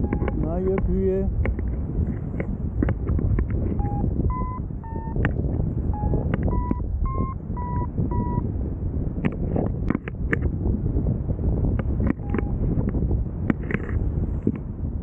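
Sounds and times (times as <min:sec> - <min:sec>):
variometer beeping: 0:00.0 - 0:00.8, 0:03.7 - 0:08.5, 0:12.0 - 0:12.8
wind noise on microphone: 0:00.0 - 0:15.0.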